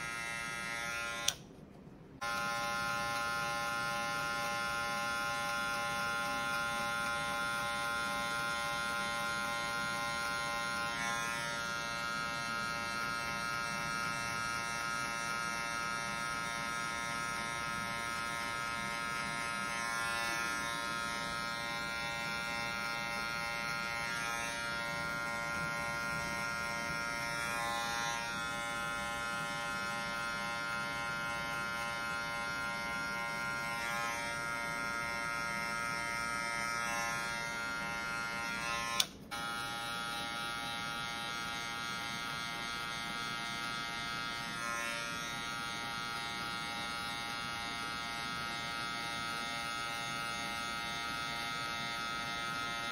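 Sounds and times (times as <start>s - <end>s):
hair clipper buzzing: 0.0s - 1.6s, 2.2s - 52.9s.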